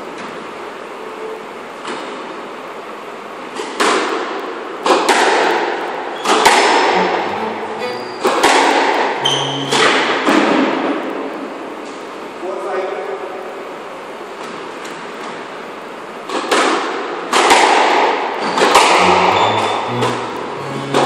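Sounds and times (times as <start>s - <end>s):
squash ball striking court walls: 3.6s - 10.9s, 16.2s - 21.0s.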